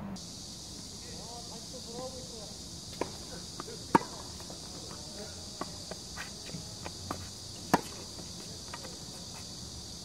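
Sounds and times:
insects droning: 0.0s - 10.0s
tennis ball hit by racket: 3.0s - 9.0s.

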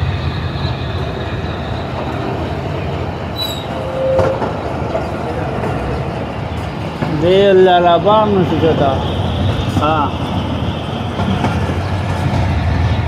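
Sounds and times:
train wheels rumbling on rails: 0.0s - 13.0s
short squeak: 3.4s - 4.5s.

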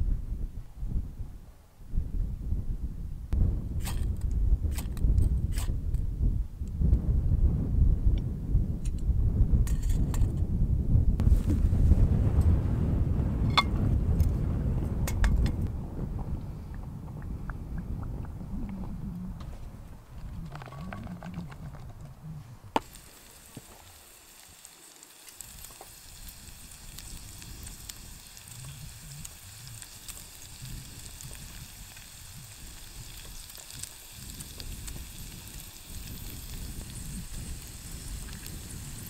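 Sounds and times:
low rumble: 2.0s - 22.8s
vegetables sizzling in hot oil: 22.8s - 39.0s.

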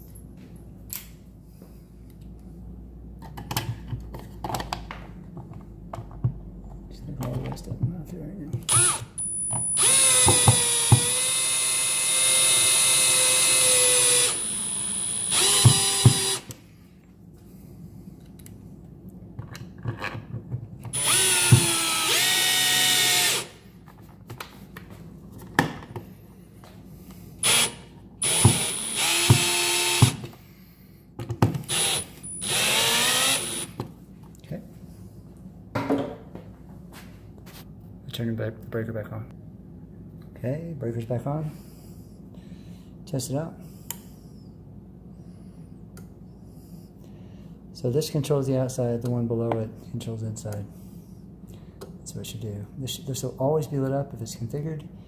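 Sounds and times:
cordless drill motor whining: 8.7s - 16.6s, 21.0s - 23.6s, 27.4s - 30.3s, 31.6s - 33.8s.

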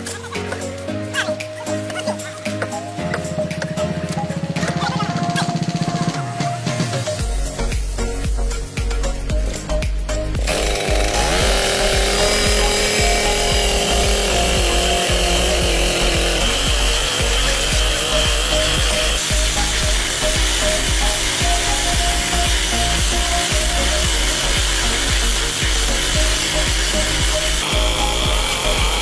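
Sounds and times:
rail grinder grinding rail: 10.3s - 29.0s.

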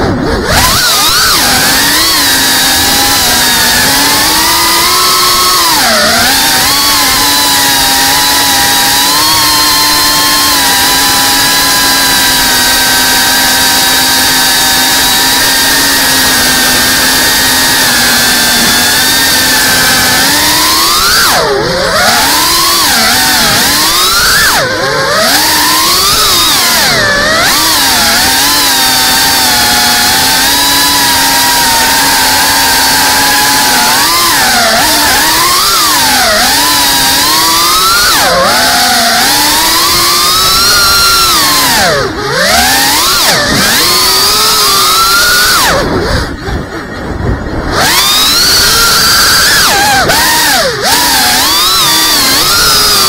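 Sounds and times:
drone motors whining: 0.0s - 53.0s
wind noise: 45.3s - 50.9s.

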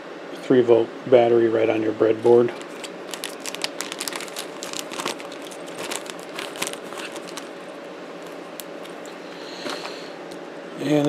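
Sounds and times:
plastic bag crinkling: 2.5s - 10.4s.

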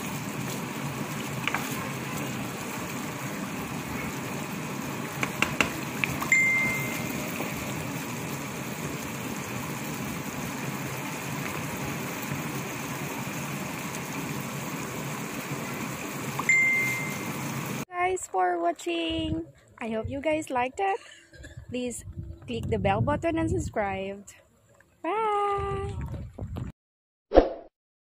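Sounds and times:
sauce bubbling and sizzling in wok: 0.0s - 17.9s
high steady ding: 6.3s - 7.1s, 16.5s - 17.2s.

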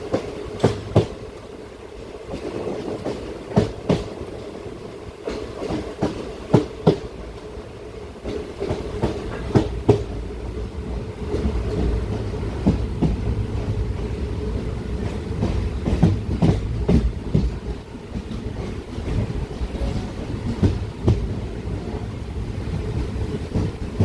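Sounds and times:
train wheels clacking over rail joints: 0.0s - 1.2s, 2.3s - 4.5s, 5.2s - 7.5s, 8.2s - 10.2s, 15.0s - 21.9s.

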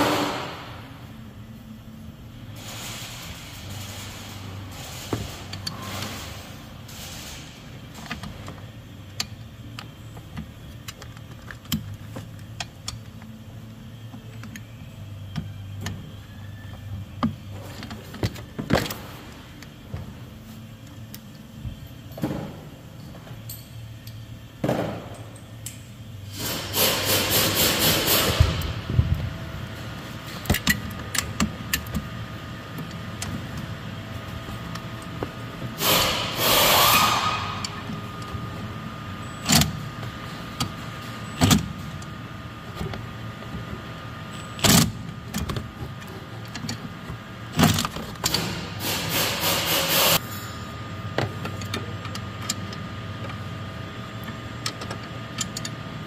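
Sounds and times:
steady low hum: 0.0s - 56.0s
rapid clicking and scraping of tools: 25.6s - 28.7s, 47.6s - 50.2s.

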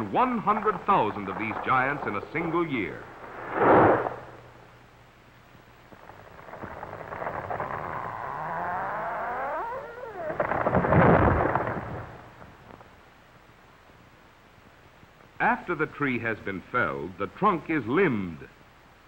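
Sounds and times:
tree falling rushing: 0.2s - 4.4s, 6.0s - 12.9s
tree trunk crashing to ground: 6.0s - 8.4s, 10.3s - 12.6s.

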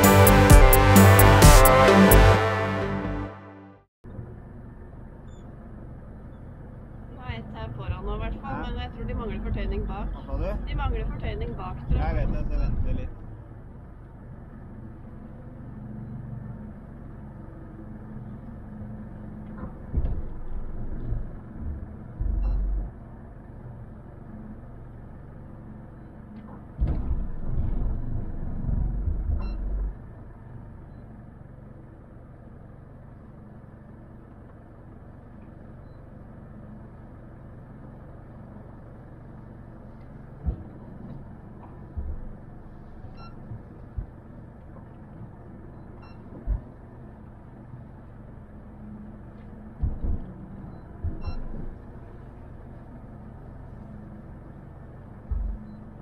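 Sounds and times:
boat engine humming: 0.0s - 56.0s
low thumps: 7.3s - 13.3s, 19.6s - 23.1s.

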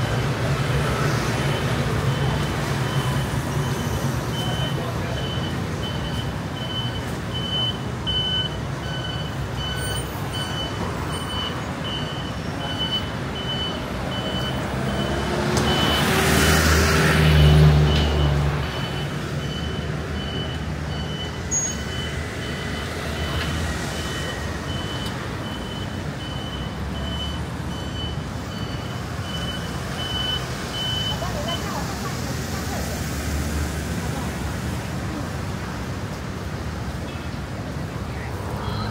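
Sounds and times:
street noise: 0.0s - 38.9s
high electronic beep: 17.9s - 31.2s.

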